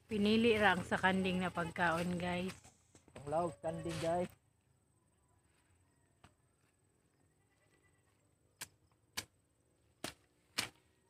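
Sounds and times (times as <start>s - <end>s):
blade chopping through stems: 10.0s - 10.9s.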